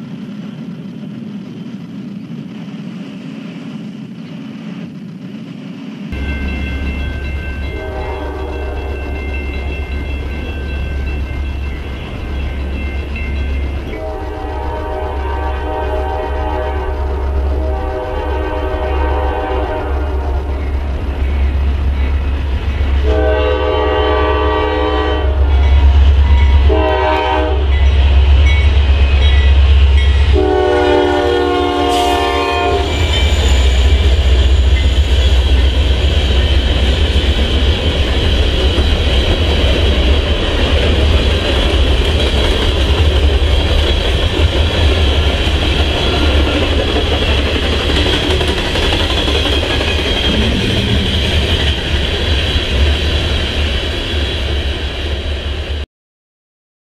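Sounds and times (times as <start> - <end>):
freight train cars rumbling past: 0.0 - 55.8
locomotive air horn blasts: 7.7 - 9.2, 13.9 - 20.6, 23.0 - 25.9, 26.6 - 27.8, 30.3 - 33.1.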